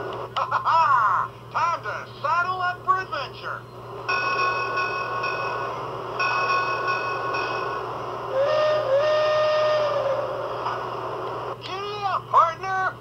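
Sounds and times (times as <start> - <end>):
steady hiss: 3.9 - 12.0
lower whistle tone bending up: 8.3 - 10.5
electronic train whistle: 8.3 - 10.6.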